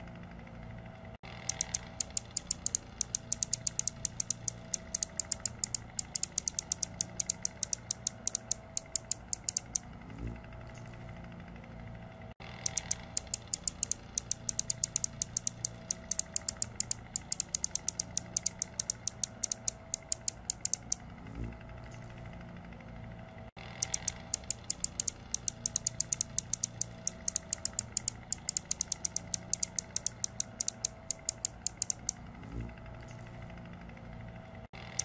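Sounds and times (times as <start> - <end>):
hummingbird scratchy ticking song: 1.3 - 9.8, 12.4 - 21.0, 23.6 - 32.2, 34.8 - 35.0.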